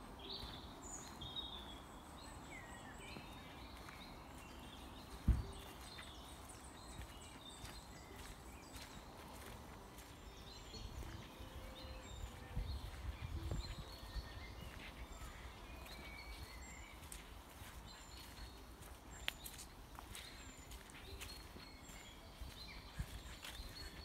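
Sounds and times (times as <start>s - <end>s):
footsteps on dirt path: 0.0s - 24.0s
small birds chirping: 0.0s - 24.0s.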